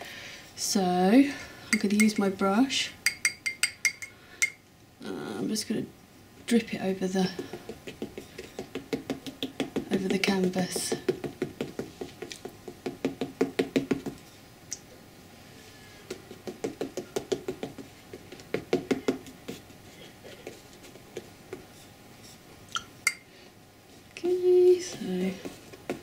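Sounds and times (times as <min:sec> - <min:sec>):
paintbrush tapping on canvas: 0:07.4 - 0:14.2, 0:16.1 - 0:19.6.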